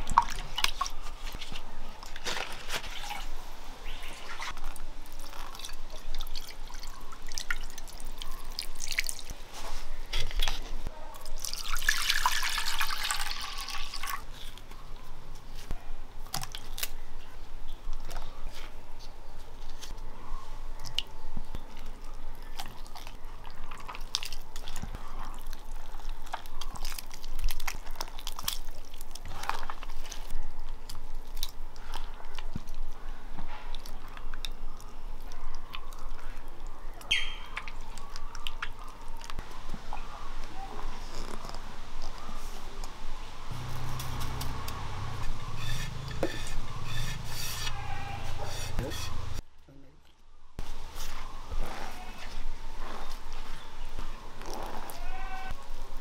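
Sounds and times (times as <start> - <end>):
water dripping: 5.0 - 9.3.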